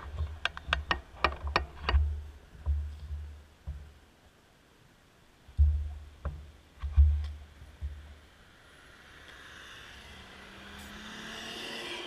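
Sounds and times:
thumps on microphone: 0.1 - 4.0, 5.5 - 8.1
car passing close: 7.8 - 12.0.

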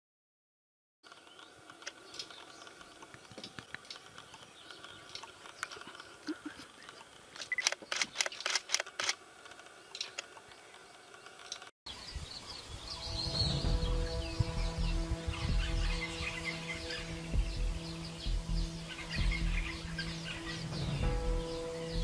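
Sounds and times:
camera shutters clicking: 7.4 - 10.3.

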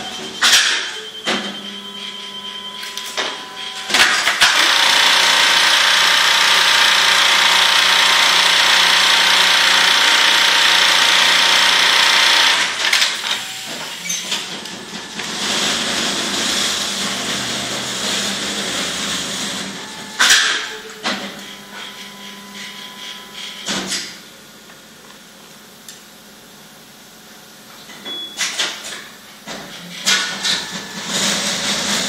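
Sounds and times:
sewing machine rattling: 4.3 - 13.4.

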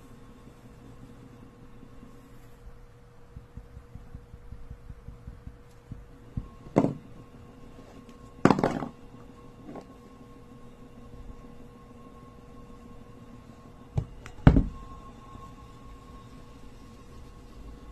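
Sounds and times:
faint steady hum: 0.0 - 17.9
knocks and thuds: 3.3 - 7.0.

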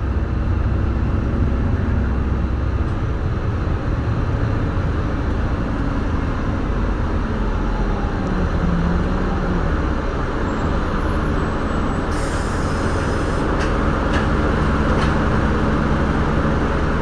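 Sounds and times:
bus engine and road rumble: 0.0 - 17.0
air brakes hiss: 12.1 - 13.5.

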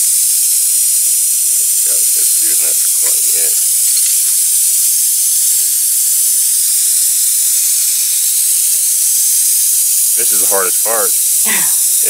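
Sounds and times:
air hissing from tire puncture: 0.0 - 12.0.

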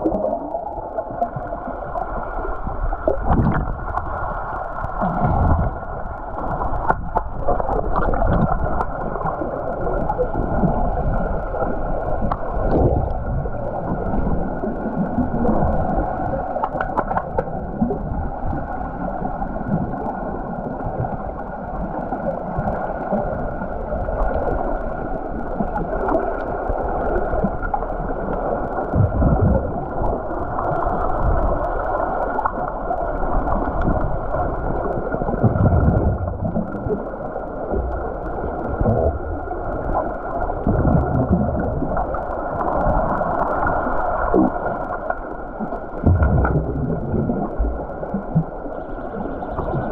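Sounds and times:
low underwater thumps: 46.0 - 47.3.

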